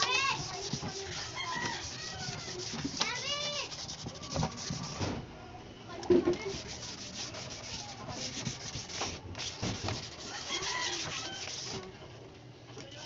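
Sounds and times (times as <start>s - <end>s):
wet sandpaper rubbing on plastic: 0.0s - 5.1s, 6.4s - 11.9s.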